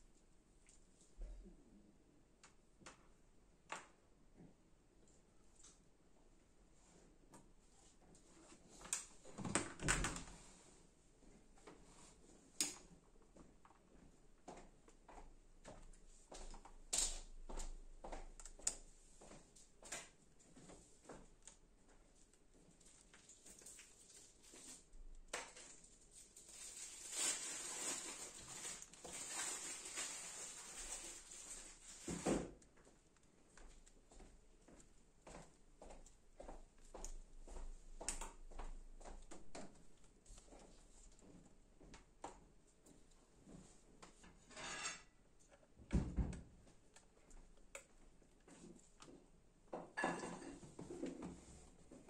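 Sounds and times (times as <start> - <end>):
hands handling cables and parts: 22.3 - 34.0.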